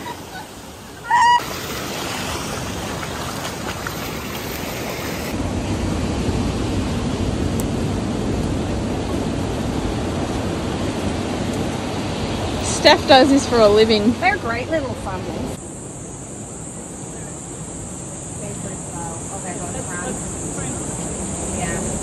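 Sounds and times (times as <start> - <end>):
surf washing over rocks: 0.0 - 15.6
brief voice-like cry: 1.0 - 1.4
deep rushing noise: 5.3 - 14.4.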